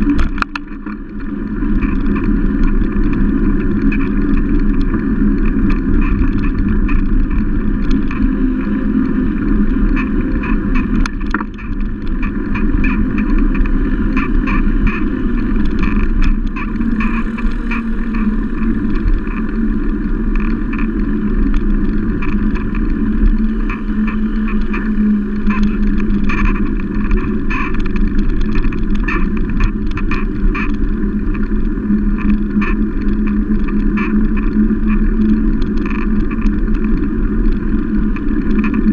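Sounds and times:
road and wind rumble: 0.0 - 38.9.

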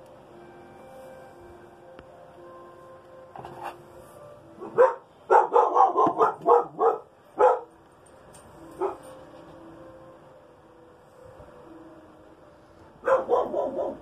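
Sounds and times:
dog barking: 4.6 - 7.7, 8.8 - 9.0, 13.0 - 14.0.

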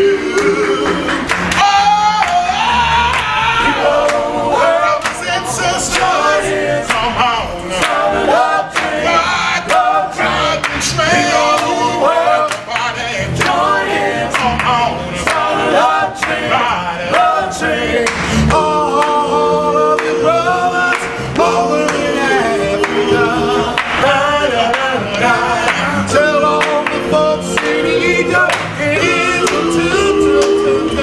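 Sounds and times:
male vocal group singing doo-wop: 0.0 - 31.0
sharp handclaps: 23.8 - 24.1, 28.5 - 28.8.

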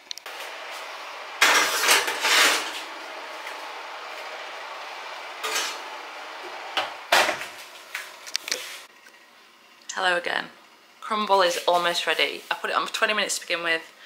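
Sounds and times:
baking dishes scraping: 1.4 - 3.0.

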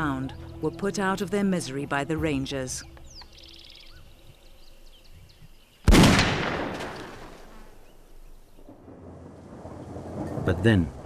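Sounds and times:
birds chirping faintly: 0.0 - 6.1, 6.8 - 8.8
gunshot with echo: 5.9 - 7.7.

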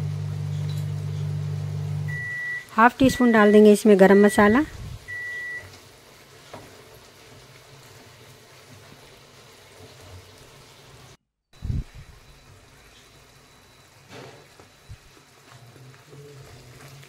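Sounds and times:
food sizzling in a pan: 3.5 - 11.2, 11.9 - 17.0.

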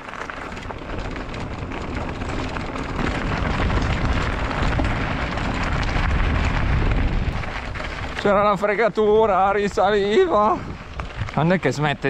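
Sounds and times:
bike tyres rolling over gravel: 0.0 - 12.0
wind rumble on microphone: 0.0 - 12.0
small clicks of stones: 10.1 - 12.0.

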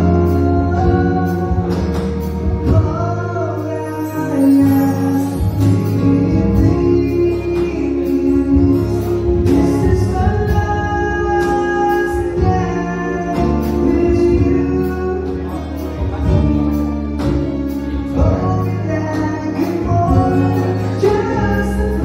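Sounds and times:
instrumental accompaniment: 0.0 - 22.0
person singing: 0.0 - 22.0.

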